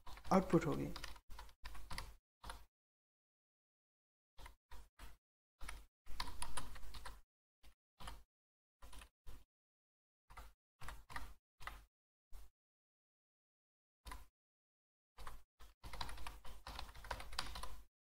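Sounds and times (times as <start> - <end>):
computer keyboard typing: 0.0 - 2.7, 4.4 - 7.2, 8.0 - 8.2, 8.8 - 9.4, 10.3 - 11.9, 14.1 - 14.3, 15.2 - 17.9.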